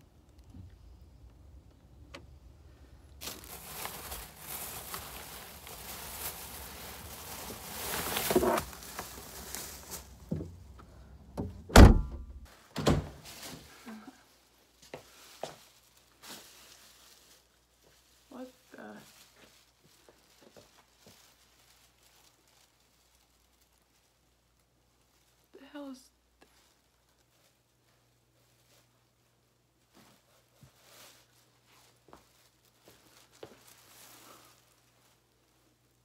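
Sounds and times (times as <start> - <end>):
plastic bags rustling: 2.7 - 10.8, 12.4 - 25.6, 26.2 - 36.0
car trunk lid thunk: 11.4 - 13.1.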